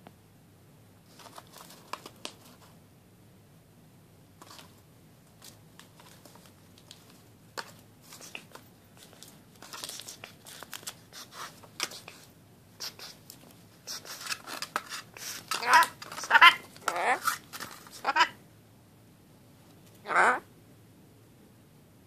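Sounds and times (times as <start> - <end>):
bird tearing cardboard: 5.4 - 18.3.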